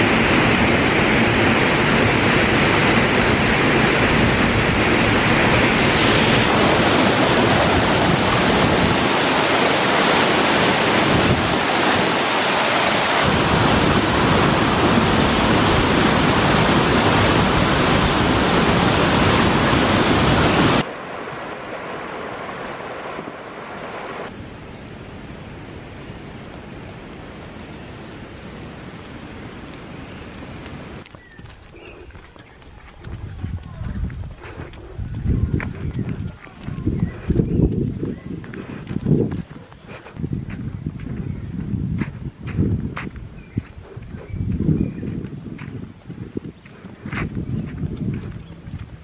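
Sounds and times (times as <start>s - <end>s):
waterfall and river rapids: 0.0s - 28.5s
steady hiss: 0.0s - 31.0s.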